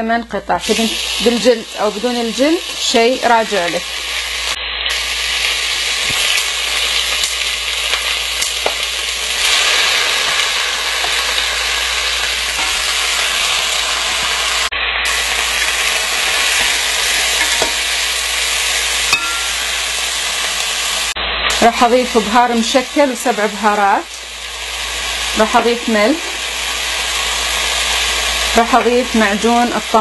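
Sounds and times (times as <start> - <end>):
chicken sizzling in oil: 0.6 - 30.0
spatula turning food: 15.3 - 21.0.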